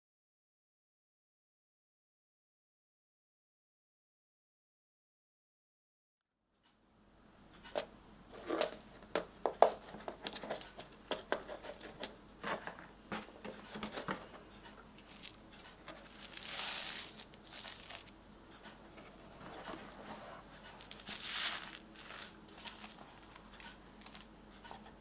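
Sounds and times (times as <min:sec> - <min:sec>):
paper rustling: 0:15.0 - 0:18.2, 0:19.0 - 0:24.8.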